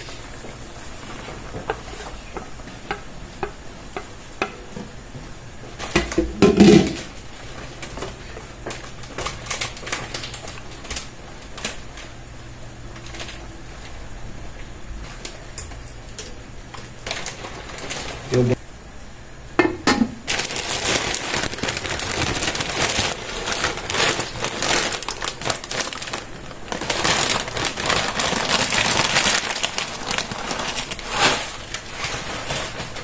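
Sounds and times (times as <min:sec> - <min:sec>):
sauce simmering: 0:00.0 - 0:12.3.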